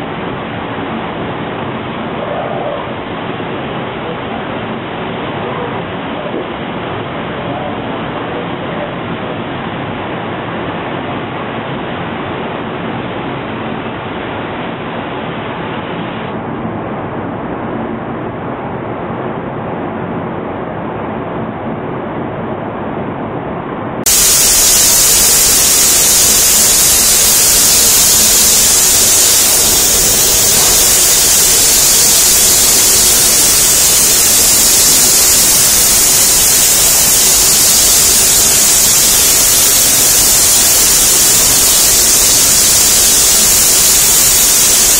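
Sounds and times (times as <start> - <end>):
spray booth machinery noise: 24.0 - 44.9
spray gun hissing: 24.1 - 44.9.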